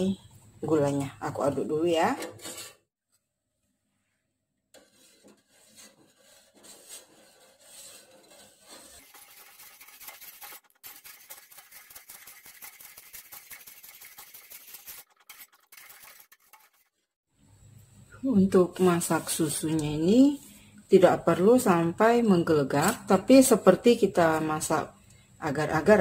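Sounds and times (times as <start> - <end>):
spoon scraping metal pot: 2.0 - 2.9, 4.8 - 16.9.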